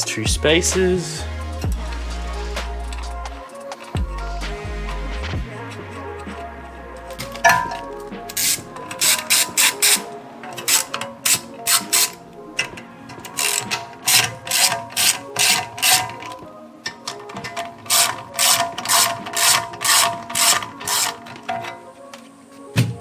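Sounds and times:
background music: 0.0 - 23.0
hand ratchet clicking: 7.2 - 21.8.

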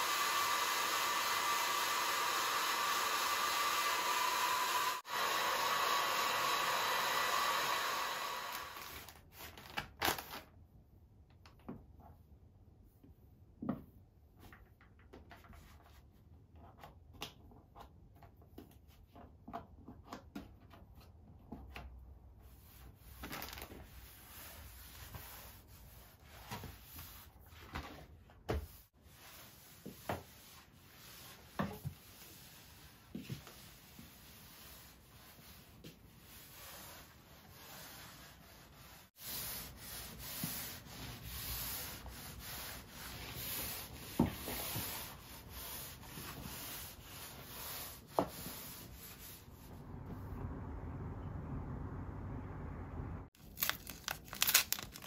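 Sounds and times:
mop rubbing over wooden floor: 23.8 - 50.2.

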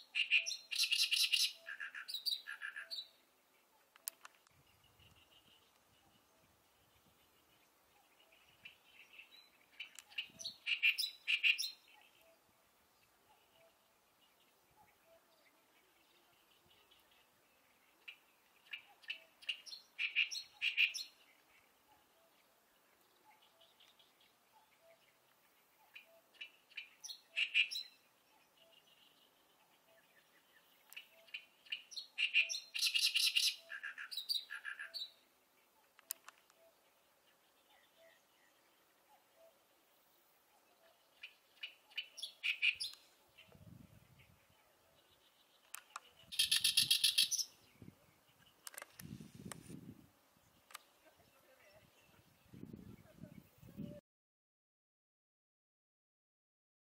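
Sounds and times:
warbler harsh chattering song: 0.0 - 3.2, 30.9 - 35.2, 41.1 - 43.5, 45.0 - 49.0
warbler singing: 0.0 - 3.8, 4.6 - 49.1.

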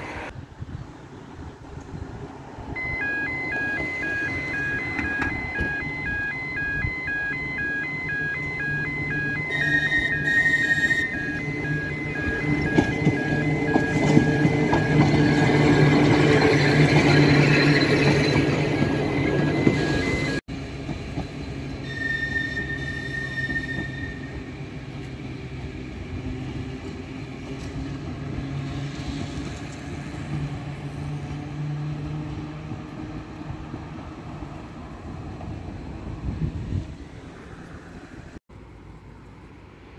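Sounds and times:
distant tram humming: 0.0 - 39.9
tram wheels on rails: 1.2 - 38.4
tram motor hum: 2.2 - 38.3
beeping warning signal: 2.8 - 20.4.

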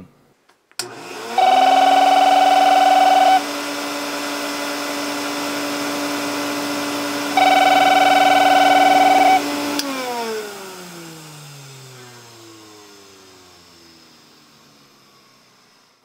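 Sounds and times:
vacuum switch click: 0.8 - 1.0
vacuum motor humming: 0.8 - 16.0
electronic phone ringer buzzing: 1.4 - 3.4, 7.3 - 9.5.

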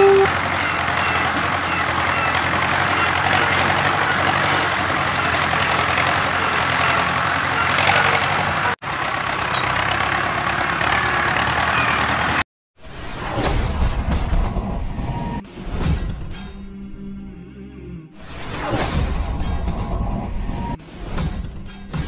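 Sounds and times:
tractor engine running: 0.0 - 12.4.

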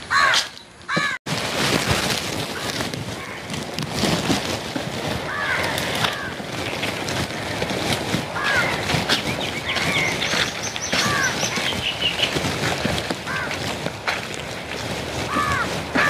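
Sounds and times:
wind rushing through foliage: 0.0 - 16.0
crow cawing: 0.1 - 1.2, 2.6 - 3.5, 5.3 - 6.4, 8.4 - 8.9, 9.7 - 12.0, 13.2 - 13.6, 15.3 - 16.0.

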